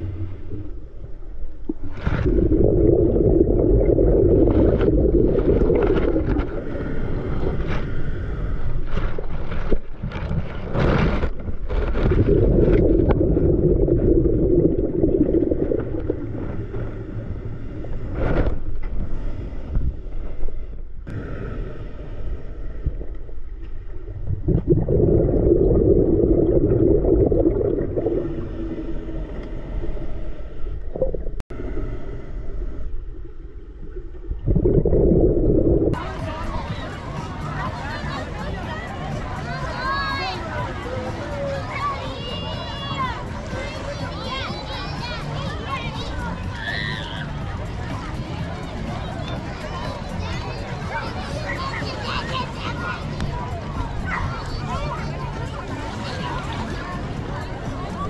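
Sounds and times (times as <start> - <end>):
regulator exhalation bubbles: 1.6 - 7.2, 12.1 - 16.9, 24.1 - 29.4, 34.3 - 36.0.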